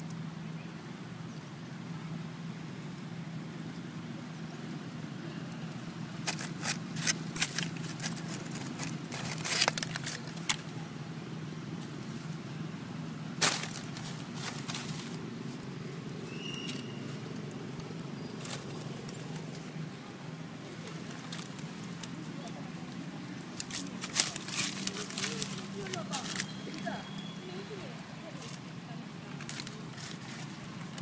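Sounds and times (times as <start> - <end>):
dry leaves crackling: 0.0 - 31.0
steady low hum: 0.0 - 31.0
high chirp: 16.2 - 17.1, 26.3 - 27.7.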